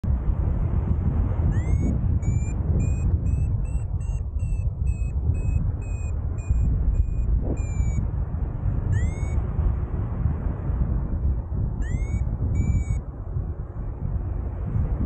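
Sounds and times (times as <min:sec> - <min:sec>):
wind rushing over microphone: 0:00.0 - 0:15.0
variometer beeping: 0:01.5 - 0:08.0, 0:08.9 - 0:09.4, 0:11.8 - 0:13.0.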